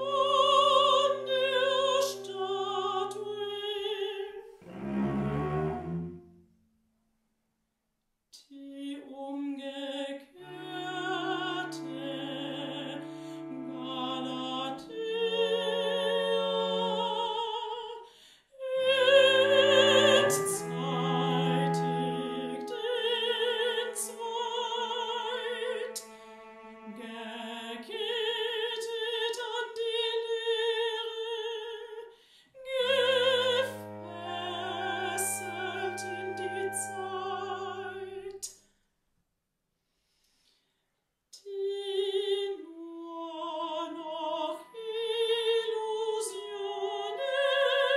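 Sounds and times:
operatic singing: 0.0s - 6.2s, 10.2s - 29.4s, 32.6s - 38.5s, 42.5s - 47.9s
low cello tones: 0.0s - 6.6s, 10.4s - 17.7s, 18.8s - 28.2s, 32.6s - 38.5s
flute: 10.5s - 17.5s, 18.8s - 24.3s, 32.6s - 38.3s, 44.4s - 47.9s.

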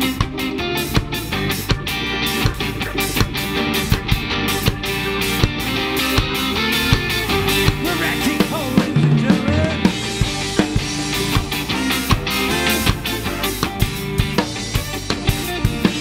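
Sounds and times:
bass guitar: 0.0s - 16.0s
drum kit: 0.0s - 16.0s
electric guitar: 0.0s - 16.0s
organ: 0.0s - 16.0s
saxophone: 11.1s - 16.0s
trumpet: 11.2s - 15.6s.

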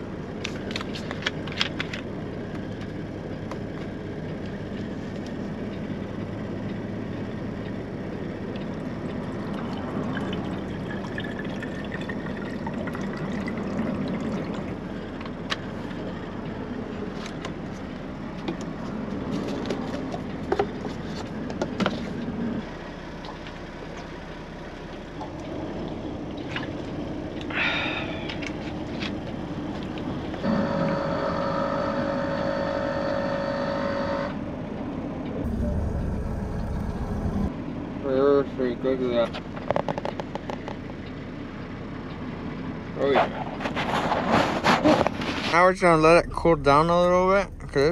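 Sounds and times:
coffee maker brewing hum: 8.7s - 15.1s, 30.4s - 34.4s, 35.4s - 37.5s.

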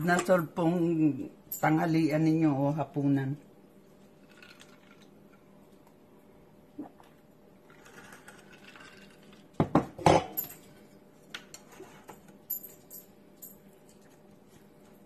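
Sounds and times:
tableware clattering: 9.6s - 10.7s.

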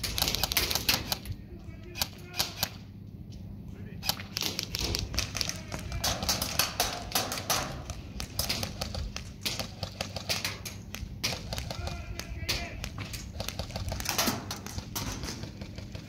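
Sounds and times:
airsoft gun shots: 4.1s - 15.8s.

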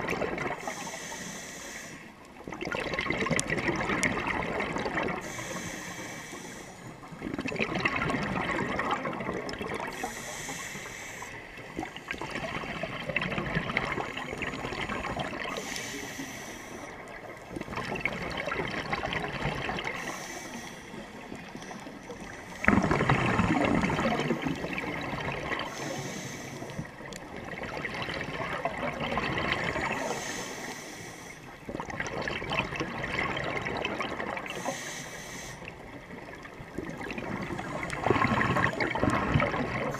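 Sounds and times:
exhale bubbling underwater: 0.0s - 1.1s, 2.4s - 6.0s, 7.0s - 10.8s, 11.6s - 30.9s, 31.5s - 34.9s, 35.7s - 39.9s
regulator inhale hiss: 0.6s - 2.3s, 5.2s - 7.0s, 9.9s - 11.7s, 15.4s - 17.2s, 19.8s - 22.7s, 25.6s - 27.1s, 29.9s - 31.6s, 34.5s - 35.9s.

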